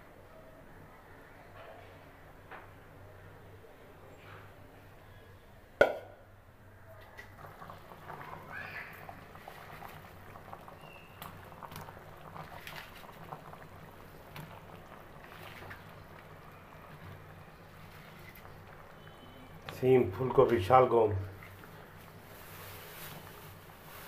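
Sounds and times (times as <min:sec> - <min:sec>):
curry bubbling in a metal pan: 0:07.1 - 0:24.0.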